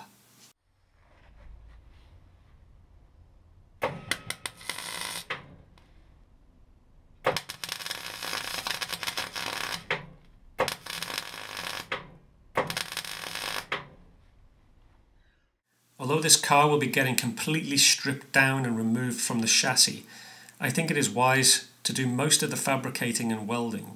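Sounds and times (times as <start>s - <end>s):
welding arc crackling: 4.1s - 5.6s, 7.2s - 14.0s.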